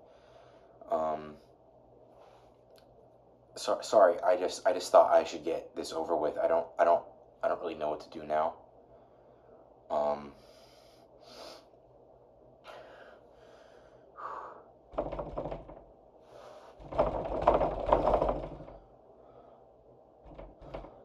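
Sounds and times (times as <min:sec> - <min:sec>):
man breathing and sighing: 0:12.6 - 0:14.8.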